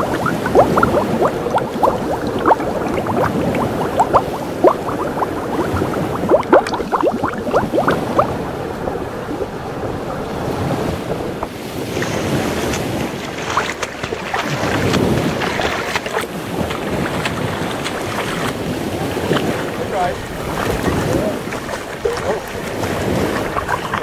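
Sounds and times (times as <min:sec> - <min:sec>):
bubbly gurgles: 0:00.0 - 0:10.2, 0:20.4 - 0:24.0
water rushing underwater: 0:00.0 - 0:24.0
water splashing and sloshing: 0:00.0 - 0:24.0.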